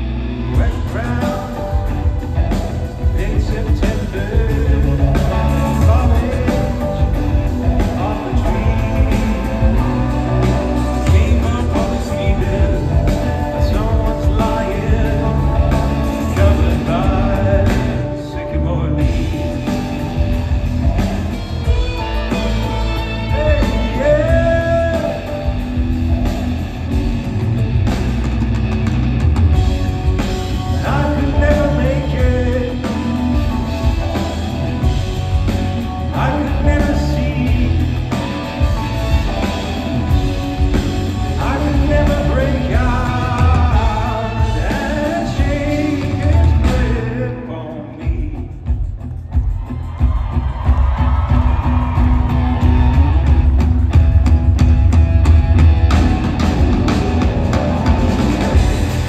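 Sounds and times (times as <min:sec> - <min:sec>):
heavy bass beat: 0:00.0 - 0:18.1
drums: 0:00.0 - 0:59.0
electric guitar: 0:00.0 - 0:59.0
keyboards: 0:00.0 - 0:59.0
male singer singing into microphone: 0:00.4 - 0:02.2, 0:03.0 - 0:19.6, 0:23.3 - 0:25.4, 0:30.7 - 0:33.6, 0:36.1 - 0:38.1, 0:41.3 - 0:48.7.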